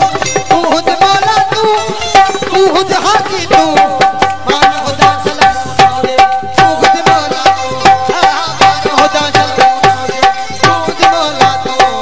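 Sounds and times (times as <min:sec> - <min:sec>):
hand drum beating: 0:00.0 - 0:12.0
harmonium: 0:00.0 - 0:12.0
string instrument melody: 0:00.0 - 0:12.0.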